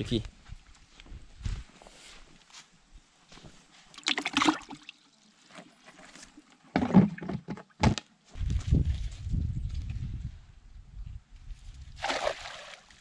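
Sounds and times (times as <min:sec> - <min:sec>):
fish splashing in bucket: 0:04.0 - 0:04.9, 0:12.0 - 0:12.9.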